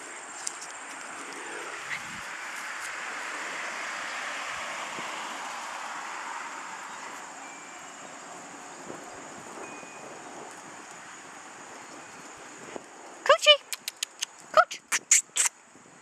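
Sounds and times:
vehicle passing: 0.8 - 8.7.

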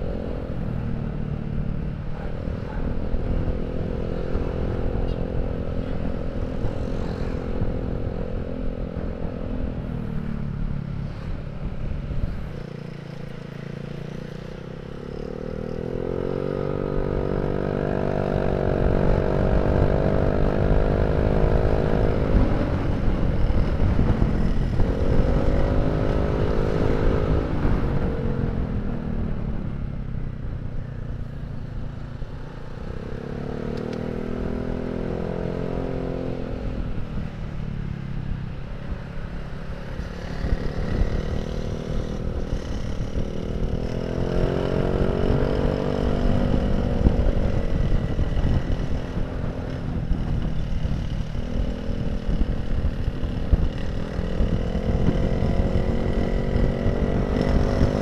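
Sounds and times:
wind rumble on microphone: 14.8 - 58.0.

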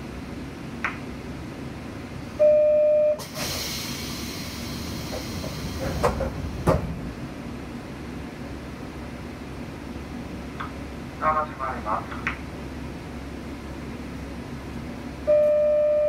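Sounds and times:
idling train hum: 0.0 - 16.0
pneumatic doors hissing: 3.2 - 7.0
sharp knocks: 5.8 - 7.0
buzzer tone: 15.3 - 16.0.

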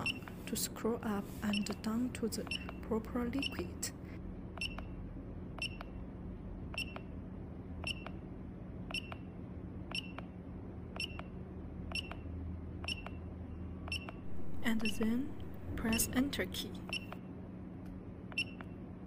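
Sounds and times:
faint low hum: 0.0 - 19.0
keypad click-beeps: 4.6 - 4.9, 5.6 - 5.9, 6.8 - 7.1, 7.8 - 8.2, 8.9 - 9.2, 9.9 - 10.2, 11.0 - 11.3, 11.9 - 12.2, 12.8 - 13.2, 13.9 - 17.2, 18.3 - 18.7.

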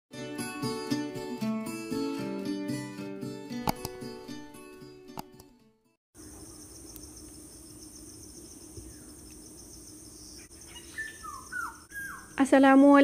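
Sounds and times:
crickets chirping: 6.2 - 13.0.

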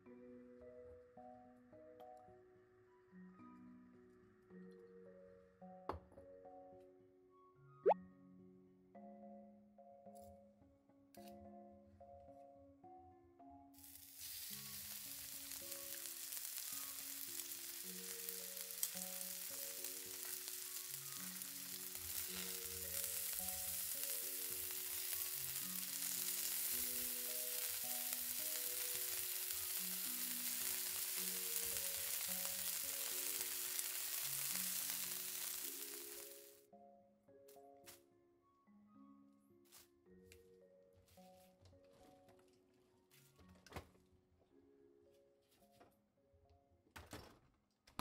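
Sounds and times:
meat sizzling in hot oil: 13.8 - 36.6.

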